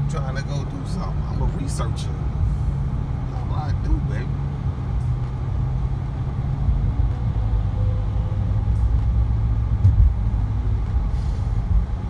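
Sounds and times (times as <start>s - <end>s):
car engine and tyre rumble: 0.0s - 12.0s.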